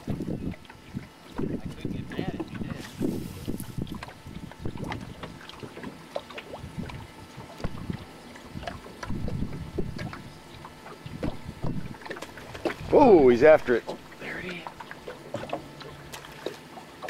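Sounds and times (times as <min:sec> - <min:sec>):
wind buffeting microphone: 0:00.0 - 0:05.4, 0:06.5 - 0:13.8
waves slapping boat hull: 0:00.0 - 0:17.0.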